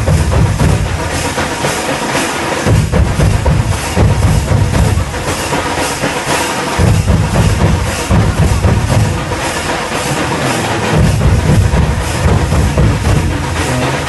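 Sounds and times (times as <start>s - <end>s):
deep kettle drums booming: 0.0s - 1.3s, 2.6s - 5.4s, 6.8s - 9.5s, 10.8s - 14.0s
rapid barrel drum strokes: 0.0s - 14.0s.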